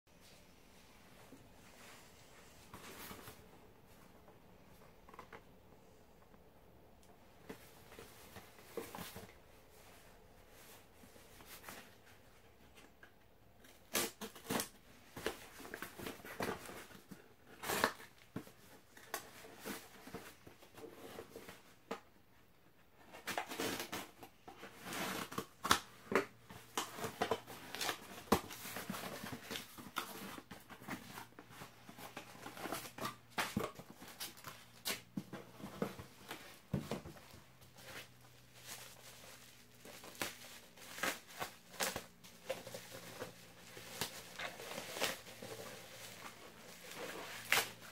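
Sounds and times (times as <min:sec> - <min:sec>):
cardboard scraping and rustling: 0:01.6 - 0:04.2, 0:23.0 - 0:47.9.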